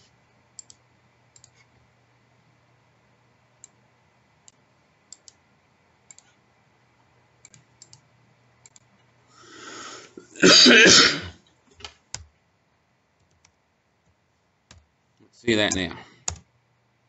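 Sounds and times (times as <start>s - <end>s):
faint low hum: 0.0s - 17.0s
computer keys clicking: 0.5s - 1.7s, 3.6s - 3.8s, 4.4s - 5.4s, 6.0s - 6.4s, 7.4s - 9.1s, 11.8s - 12.4s, 13.2s - 14.9s, 15.6s - 16.5s.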